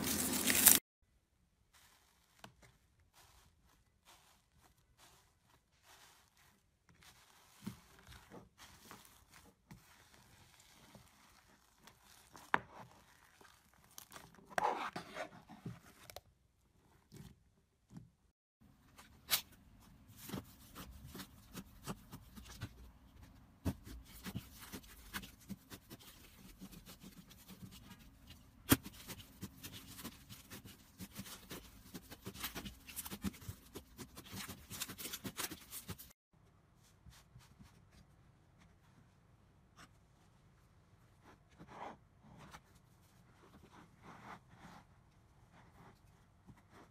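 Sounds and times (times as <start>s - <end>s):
slime crackling and popping: 0.0s - 0.8s.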